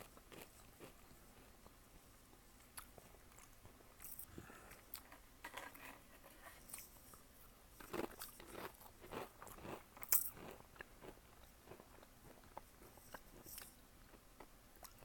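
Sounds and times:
cat crunching crisps: 7.8 - 12.0.

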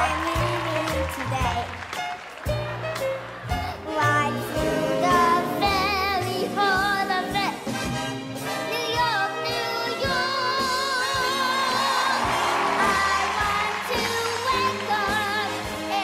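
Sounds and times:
girl singing with vibrato: 3.7 - 7.7, 8.5 - 16.0.

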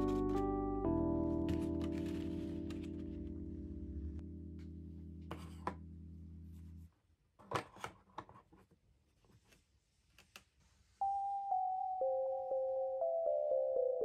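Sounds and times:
background music: 0.0 - 5.8, 11.0 - 14.0
plucked bell-like music: 11.0 - 14.0.

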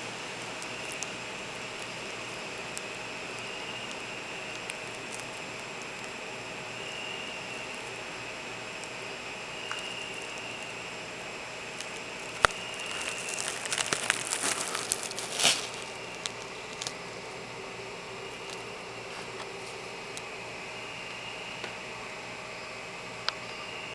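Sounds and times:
steady hiss: 0.0 - 23.9
cardboard crinkling and crackling: 12.2 - 17.0.

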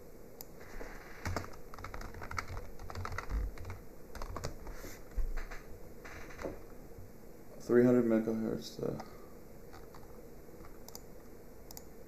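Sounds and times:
computer keyboard typing: 1.2 - 4.8, 9.7 - 11.1.

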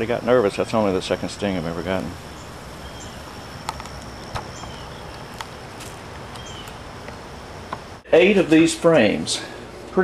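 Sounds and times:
high insect whine: 0.0 - 9.2
steady hiss: 0.0 - 10.0.

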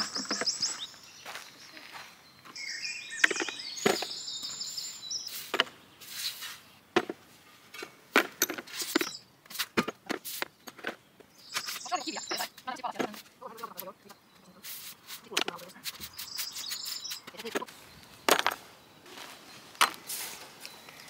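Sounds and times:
songbird trilling: 0.0 - 6.1, 8.8 - 9.3, 11.3 - 21.0.

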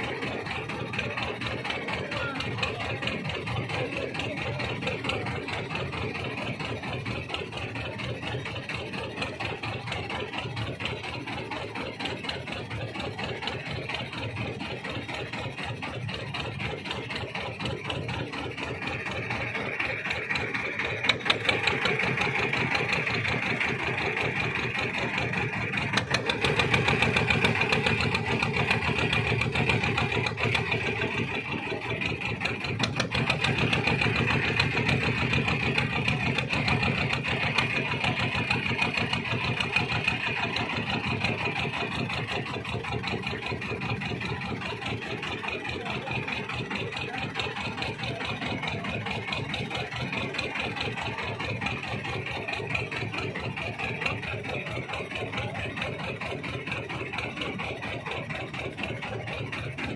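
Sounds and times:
boat engine running: 0.0 - 59.9.

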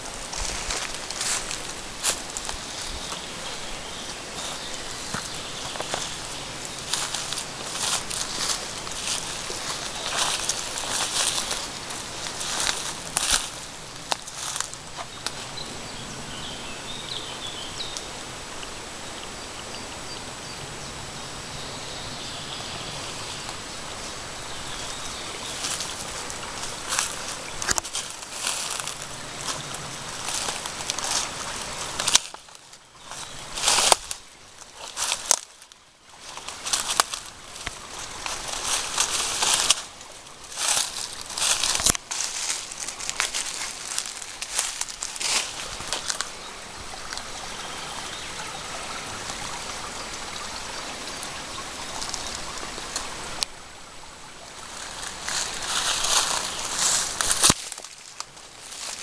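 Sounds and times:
crackling rustle: 0.0 - 15.5, 24.7 - 49.6, 54.5 - 59.0
footsteps in dry leaves: 0.0 - 15.5, 24.7 - 50.2, 54.6 - 59.0
stream trickling over stones: 0.0 - 59.0.

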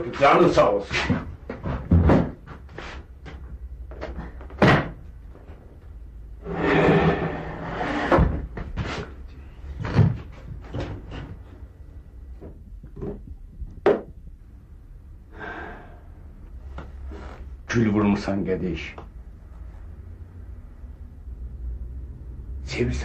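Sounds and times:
knocks and clunks of objects: 0.9 - 5.8, 8.0 - 11.7, 12.3 - 14.4.

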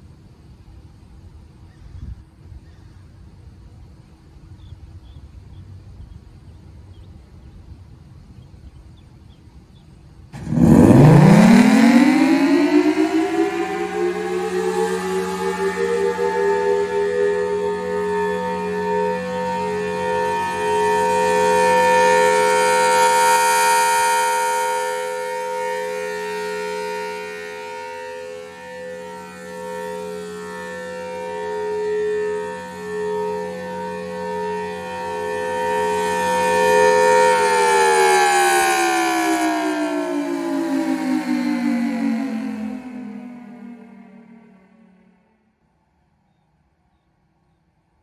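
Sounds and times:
siren winding up: 10.4 - 45.0.

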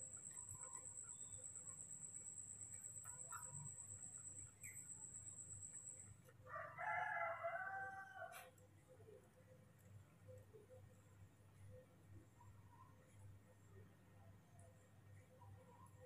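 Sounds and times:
rooster crowing: 6.5 - 8.5.

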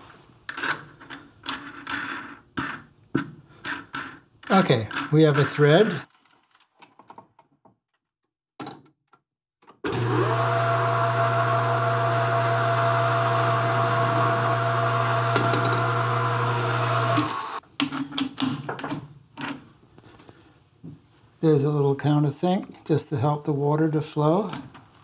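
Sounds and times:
metal lathe humming and whining: 9.9 - 17.6
tool cutting into brass: 15.3 - 17.6.

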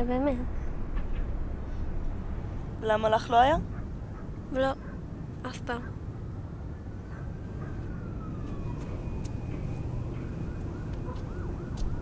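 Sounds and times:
steady low rumble: 0.0 - 12.0
distant siren wailing: 3.0 - 12.0.

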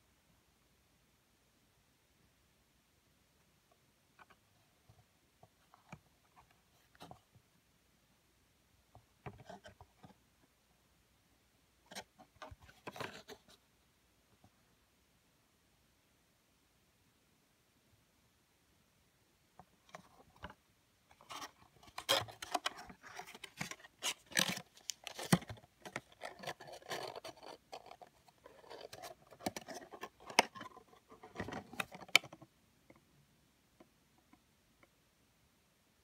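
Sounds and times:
cards scraping and rustling: 21.1 - 32.4.

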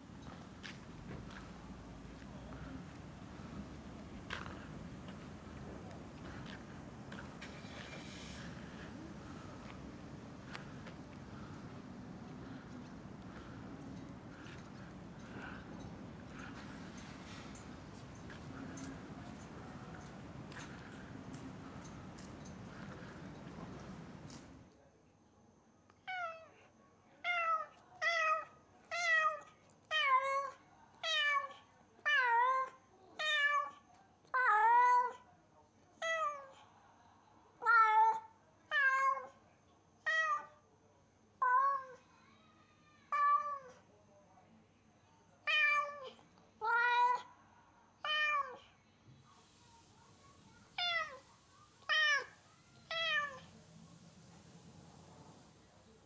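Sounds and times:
cat meowing loudly: 48.0 - 48.6, 50.8 - 51.2, 51.9 - 53.5.

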